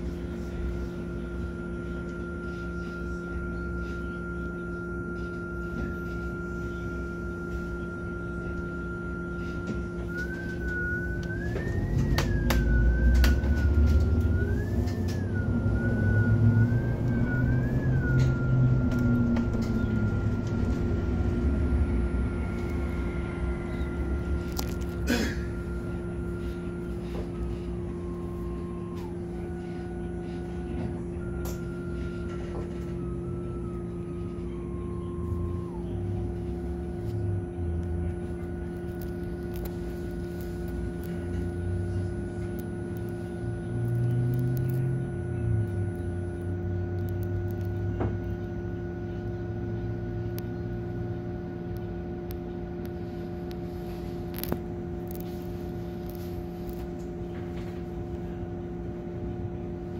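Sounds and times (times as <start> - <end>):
bus engine hum and whine: 0.0 - 59.9
low rumble: 8.5 - 59.9.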